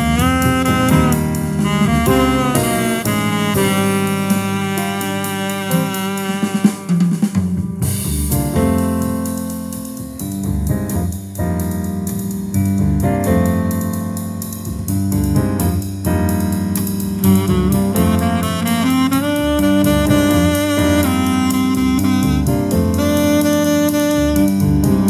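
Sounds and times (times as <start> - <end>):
instrumental music over loudspeakers: 0.0 - 10.3.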